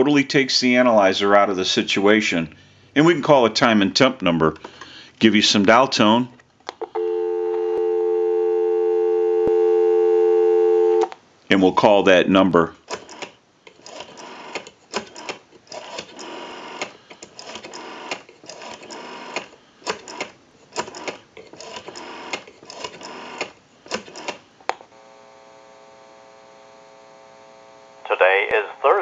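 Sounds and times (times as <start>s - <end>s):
telephone line tone: 6.8s - 11.1s.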